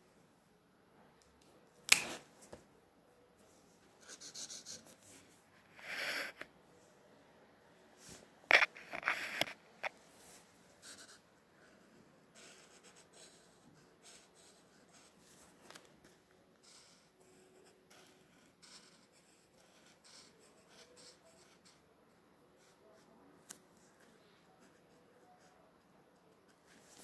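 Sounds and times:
marker scratching on paper: 4.0s - 6.4s, 8.5s - 9.6s, 10.8s - 11.2s, 12.3s - 15.4s, 16.0s - 21.8s.

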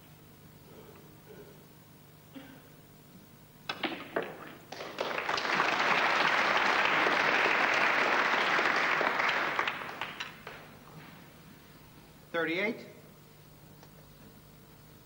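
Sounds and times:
snooker balls clicking: 3.7s - 5.2s, 10.0s - 10.7s
audience applauding: 4.6s - 10.7s.

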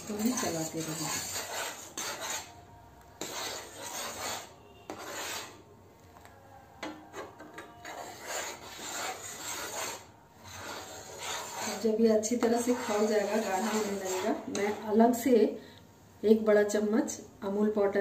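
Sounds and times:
steel ladle scraping a pan: 0.0s - 2.6s, 3.2s - 5.6s, 6.8s - 15.2s.

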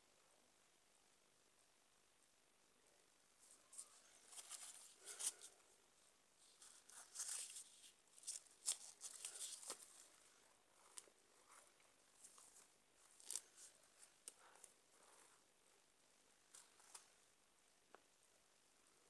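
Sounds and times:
paper wrapping rustling: 3.7s - 5.6s, 6.4s - 15.4s.

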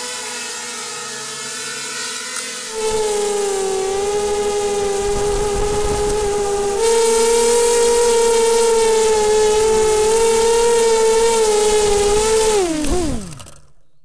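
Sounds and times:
drone motors whining: 2.7s - 13.8s.

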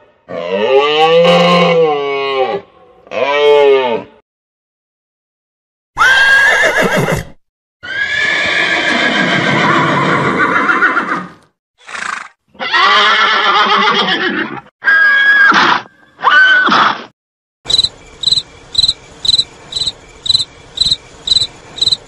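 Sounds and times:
horses neighing: 6.0s - 14.7s.

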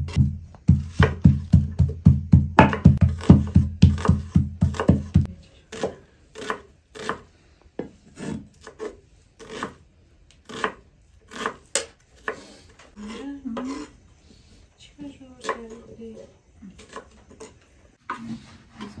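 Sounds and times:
knife chopping on wooden board: 0.0s - 7.2s, 10.4s - 12.4s.

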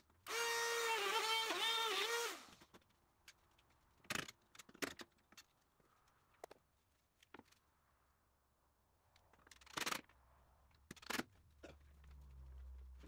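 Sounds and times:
electric router cutting: 0.3s - 2.5s.

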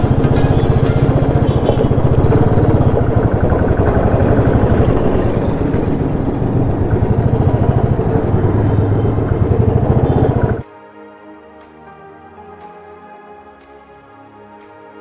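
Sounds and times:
motorcycle engine running: 0.0s - 10.6s.

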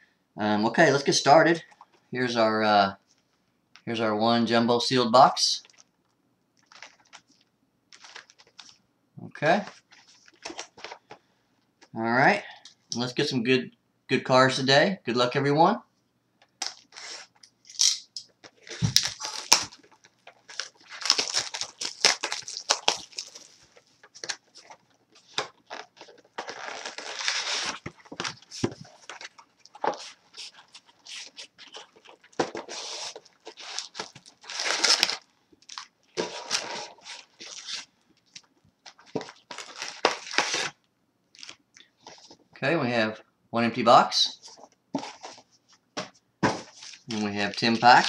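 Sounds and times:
foil packs crinkling and rustling: 6.6s - 8.8s, 18.4s - 40.8s, 46.5s - 48.0s.

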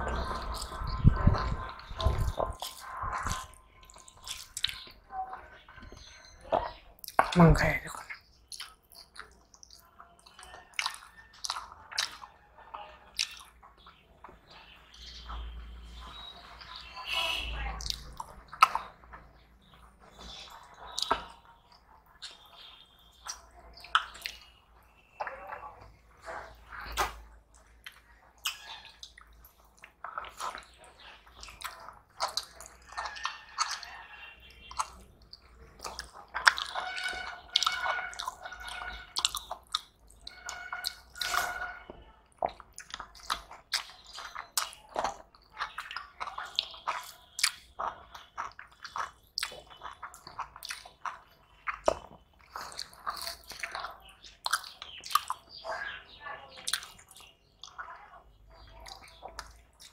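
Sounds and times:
chewing and mouth sounds: 0.0s - 59.9s
fingers mixing wet rice: 17.8s - 59.9s.

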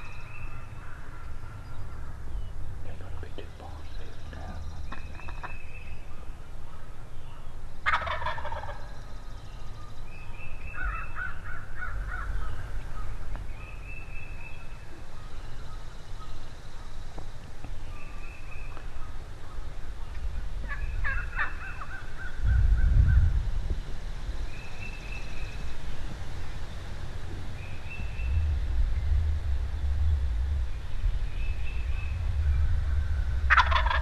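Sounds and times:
soft bird calls: 0.0s - 23.4s, 24.3s - 34.0s
turkey gobbling: 3.2s - 5.7s, 7.8s - 9.0s, 20.6s - 22.4s, 33.4s - 34.0s.

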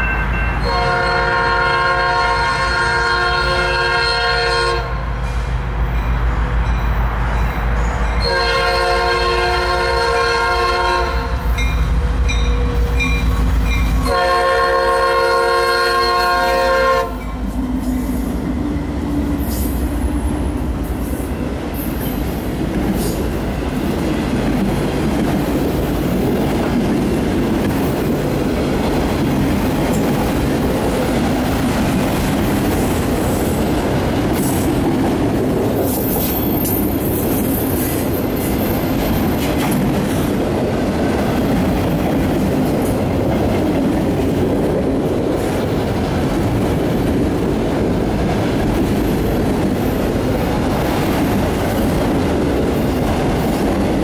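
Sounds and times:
locomotive horn chord: 0.1s - 5.1s, 8.2s - 11.5s, 14.0s - 17.3s
wheels clacking over rail joints: 21.6s - 54.0s.

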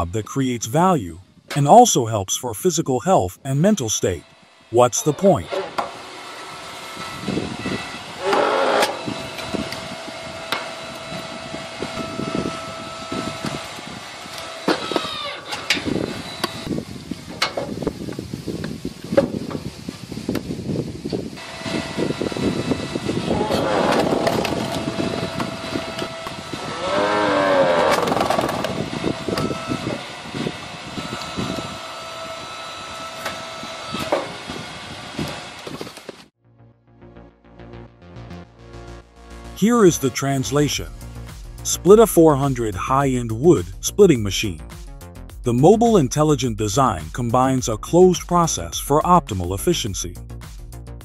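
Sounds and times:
log splitter motor whine: 5.5s - 17.3s, 21.4s - 36.3s.

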